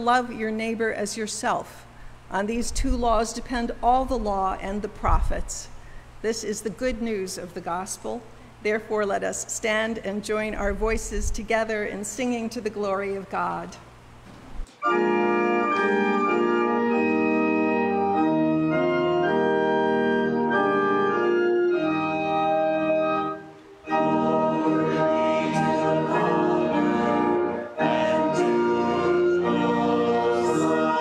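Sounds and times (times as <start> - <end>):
church organ playing a hymn: 14.8 - 31.0.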